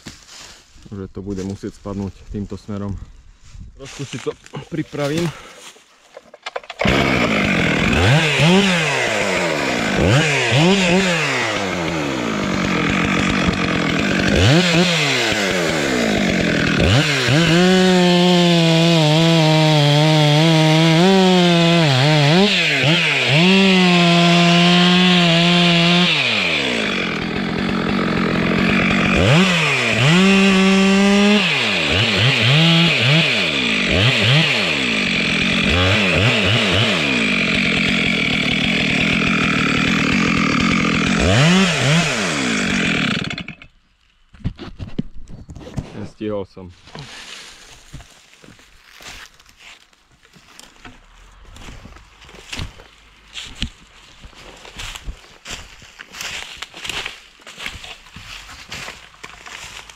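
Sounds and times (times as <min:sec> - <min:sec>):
chainsaw revving and cutting: 0:06.6 - 0:43.7, 0:50.5 - 0:59.9.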